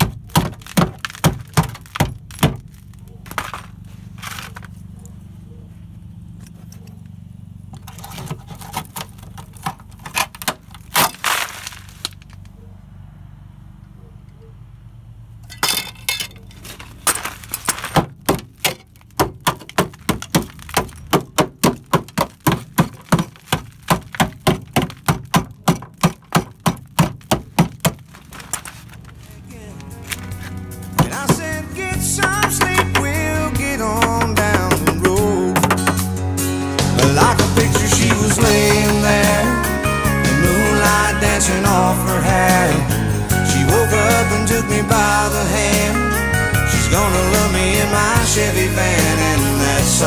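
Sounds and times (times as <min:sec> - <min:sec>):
rotten metal crunching: 0:00.0 - 0:12.6, 0:15.4 - 0:50.0
hammer striking sheet metal: 0:32.1 - 0:33.2, 0:34.0 - 0:36.2, 0:36.9 - 0:39.4.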